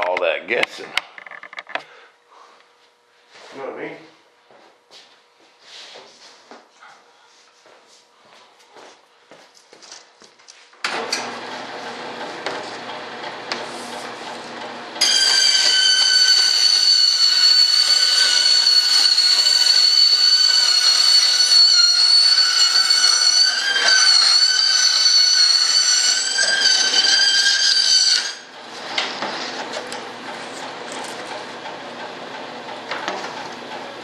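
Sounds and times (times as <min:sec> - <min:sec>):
band saw cutting plywood: 0:10.9 - 0:34.0.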